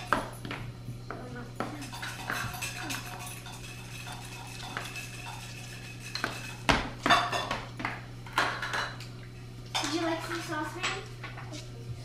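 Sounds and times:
dishes and cups clinking: 0.0 - 0.7, 1.6 - 9.1.

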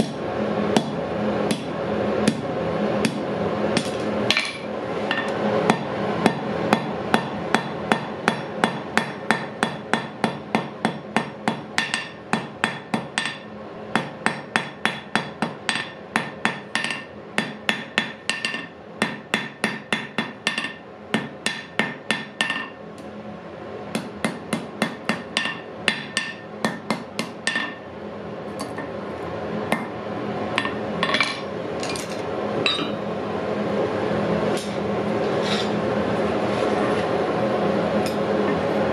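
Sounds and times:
hammer striking iron on anvil: 0.8 - 2.4, 3.0 - 3.2, 3.8 - 22.8, 23.9 - 27.9, 30.6 - 31.5, 32.6 - 33.0
anvil ringing: 32.7 - 33.1.

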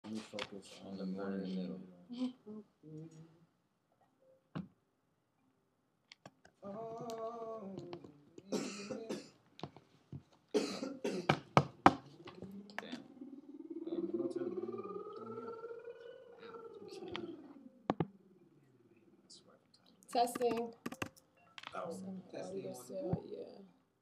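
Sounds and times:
person coughing: 8.5 - 9.3, 10.6 - 11.4
throat clearing: 8.5 - 9.3, 10.6 - 11.4.

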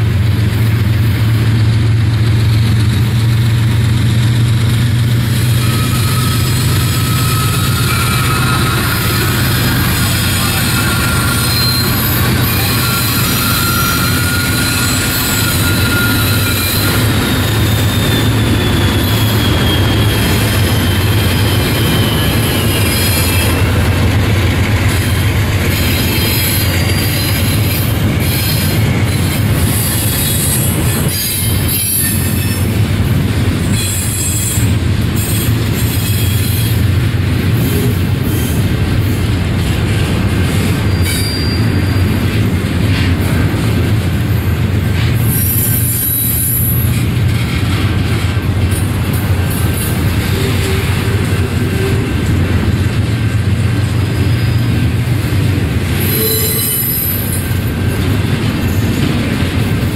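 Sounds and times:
diesel locomotives passing: 0.0 - 59.9
train wheels rumbling on rail: 0.0 - 59.9
high wheel squeals: 5.3 - 32.8, 33.7 - 37.0, 40.6 - 43.1, 44.1 - 52.5, 54.0 - 55.1, 55.9 - 59.2.

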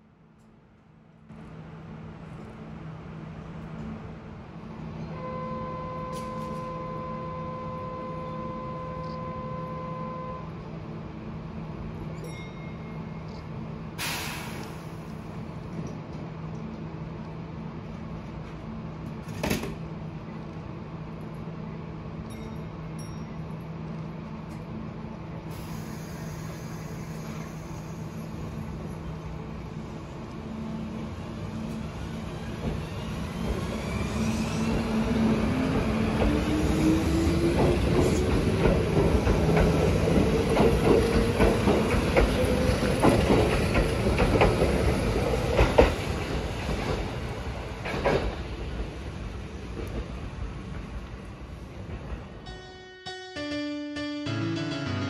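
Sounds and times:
sharp hiss of air: 14.0 - 15.2, 25.5 - 28.4.

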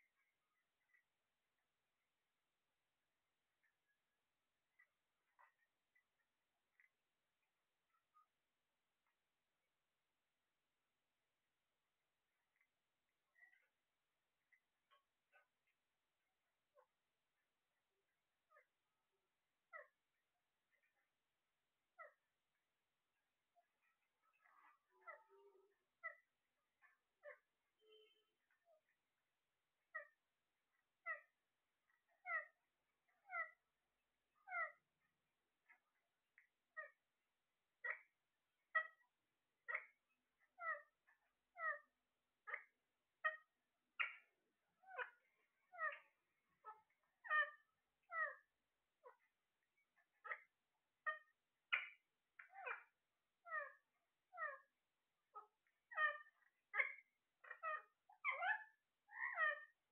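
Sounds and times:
parakeets calling: 13.4 - 13.7, 24.3 - 25.3, 31.9 - 33.6, 40.6 - 40.9, 42.5 - 49.2, 50.0 - 54.7, 55.4 - 59.7.

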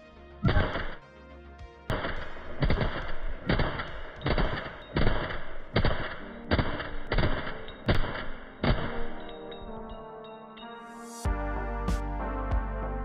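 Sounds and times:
suppressed rifle shots: 1.9 - 9.2.

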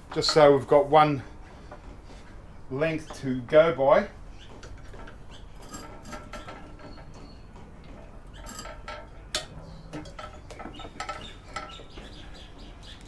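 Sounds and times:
metallic clicks and rattles of wire: 4.5 - 7.2, 7.8 - 11.9.

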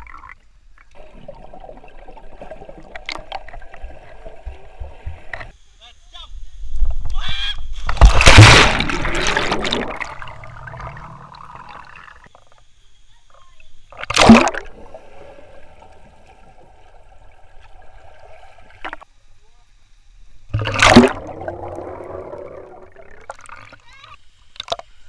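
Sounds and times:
water churning: 1.0 - 5.5, 7.9 - 12.3, 13.9 - 19.0, 20.5 - 24.8
people splashing into pool: 7.8 - 12.1, 14.0 - 15.2, 20.6 - 23.8.

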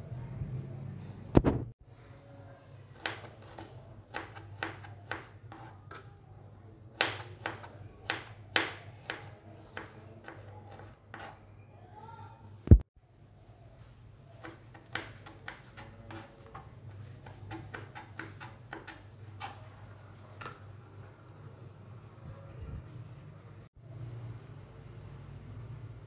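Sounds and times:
loud thump: 1.4 - 1.7.

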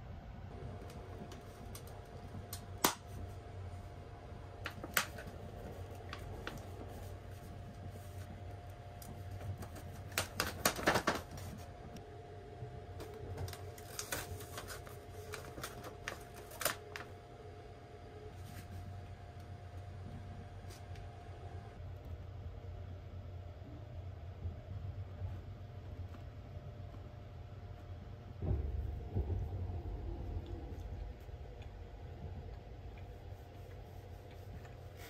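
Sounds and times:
plastic tray clicks and paper crinkles: 9.0 - 11.6
train hum: 18.1 - 35.0.

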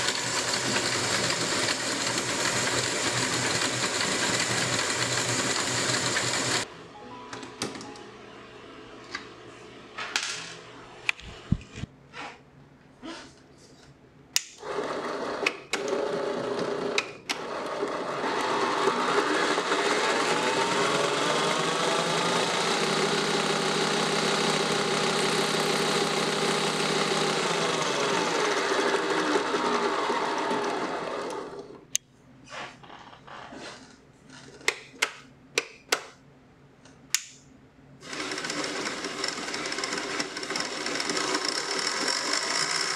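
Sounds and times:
band saw motor running: 0.0 - 6.7, 17.5 - 31.7, 38.0 - 42.9.

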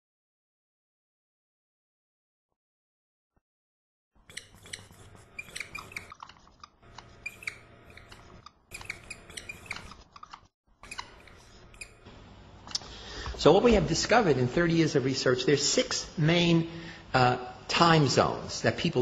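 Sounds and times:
marker squeaking on whiteboard: 4.2 - 12.1.

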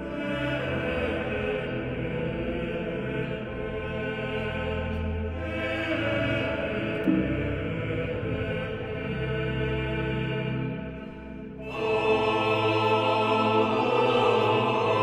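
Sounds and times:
slow drone-like music: 0.0 - 15.0.

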